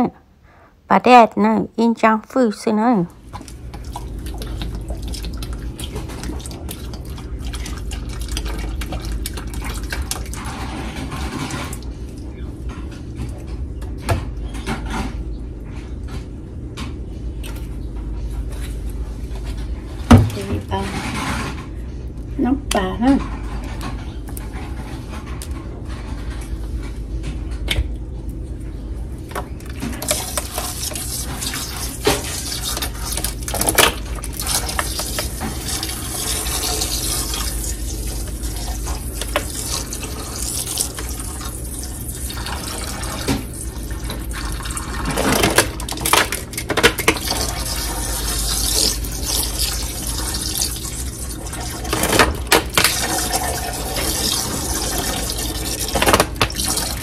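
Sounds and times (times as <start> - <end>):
liquid pouring into pot: 46.9 - 57.0.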